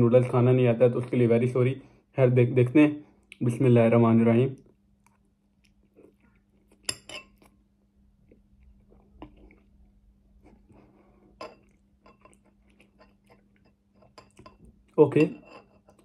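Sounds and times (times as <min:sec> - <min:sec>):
faint steady hum: 0:00.0 - 0:16.0
metal fork clinking on a bowl: 0:06.8 - 0:07.4, 0:14.0 - 0:16.0
slurping and chewing noodles: 0:08.2 - 0:14.4.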